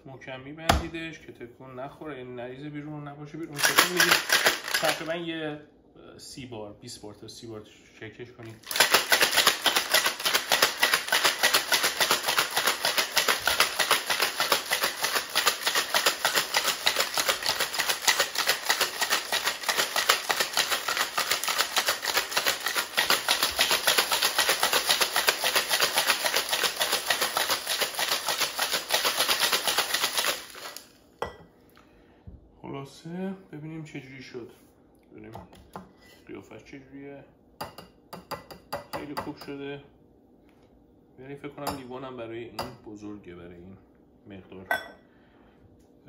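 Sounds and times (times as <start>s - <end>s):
ice rattling in cocktail shaker: 3.5s - 5.2s, 8.5s - 30.9s.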